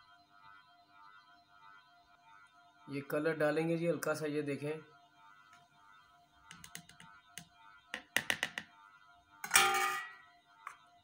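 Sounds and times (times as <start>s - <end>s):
faint background music: 0.0s - 11.0s
spoon tapping jar and bowl: 8.0s - 8.7s.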